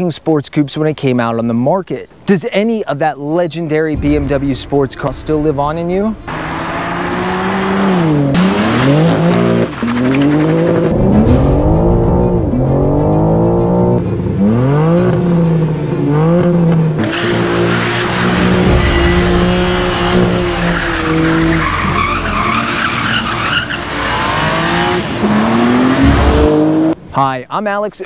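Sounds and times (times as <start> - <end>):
tyres squealing and skidding: 6.3 - 15.6, 16.2 - 27.0
car engine revving hard: 6.3 - 27.0.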